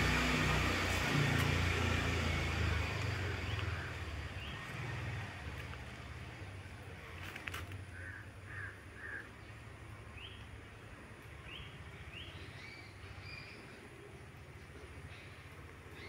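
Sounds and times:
steady low hum: 0.0s - 7.2s
faint bird calls: 7.2s - 9.6s.

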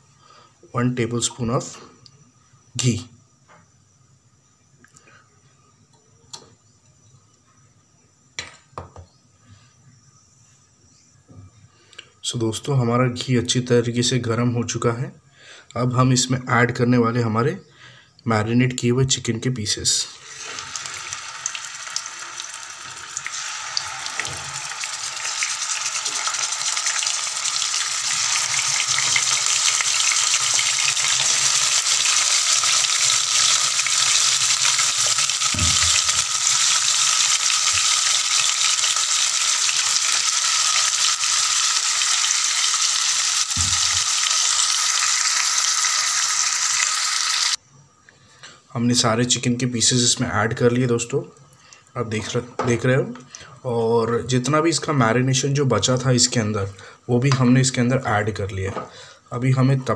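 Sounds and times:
chicken sizzling in oil: 20.2s - 47.6s.

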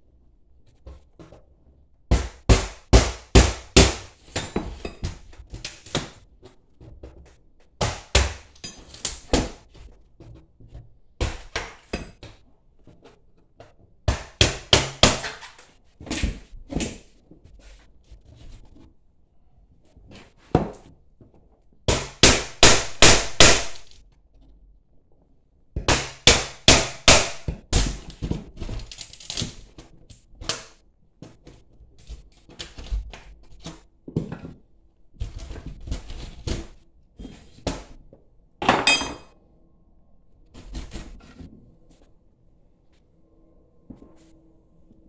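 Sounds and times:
metal clank with ring: 38.7s - 39.3s.

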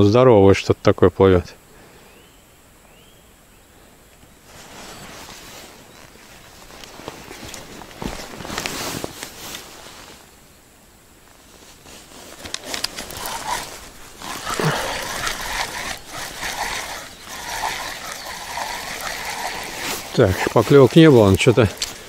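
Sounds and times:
water trickling and splashing: 12.6s - 22.0s.

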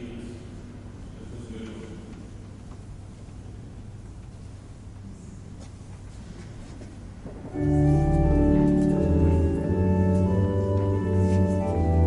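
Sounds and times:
pipe organ chords: 7.4s - 12.0s.

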